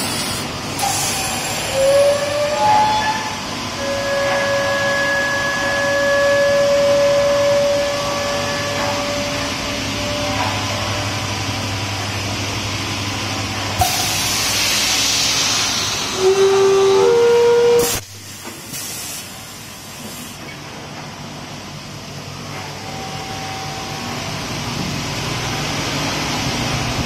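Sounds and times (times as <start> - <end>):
machine whirring and whining: 0.0 - 27.0
compressed air hissing: 13.8 - 16.4.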